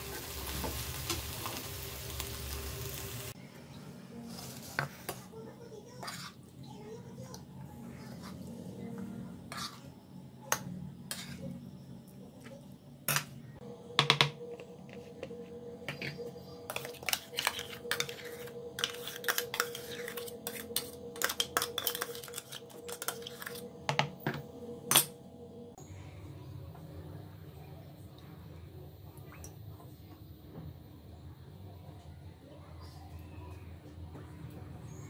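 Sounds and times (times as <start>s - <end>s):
faint steady hum: 7.4s - 35.0s
spoon scraping and tapping metal jar: 16.7s - 24.1s.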